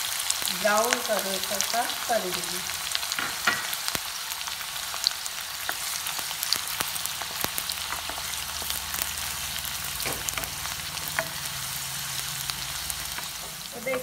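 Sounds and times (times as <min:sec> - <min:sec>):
onions sizzling in oil: 0:00.0 - 0:14.0.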